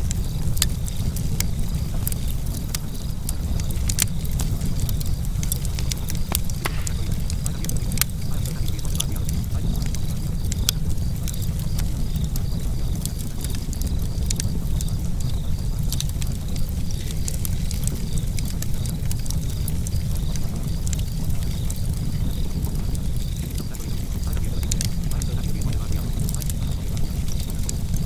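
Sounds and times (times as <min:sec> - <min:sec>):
fire crackling and popping: 0:00.0 - 0:28.0.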